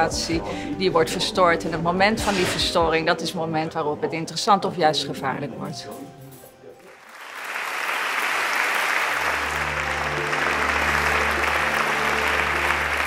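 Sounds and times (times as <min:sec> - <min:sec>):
audience applauding: 0:06.8 - 0:13.0.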